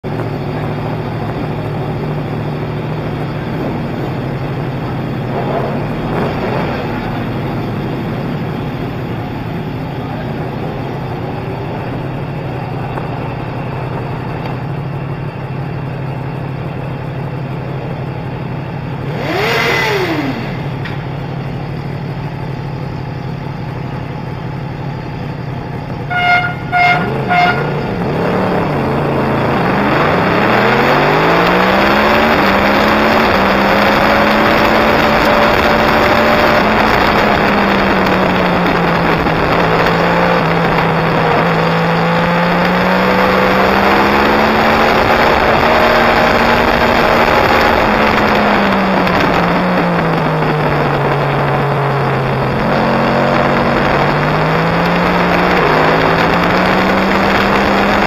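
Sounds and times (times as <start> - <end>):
motorcycle engine idling: 0.0 - 29.3.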